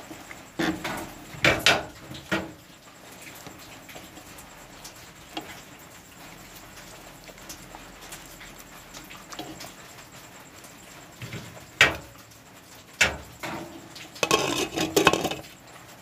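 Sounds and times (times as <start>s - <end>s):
wooden spoon knocking on pot: 14.2s - 15.4s.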